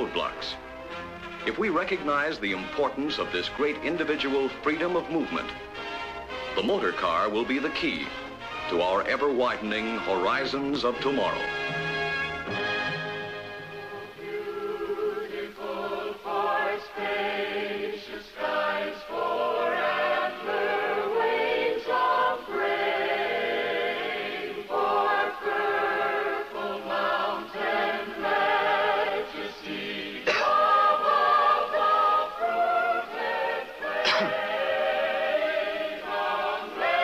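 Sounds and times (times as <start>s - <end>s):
mixed choir singing: 13.5s - 37.0s.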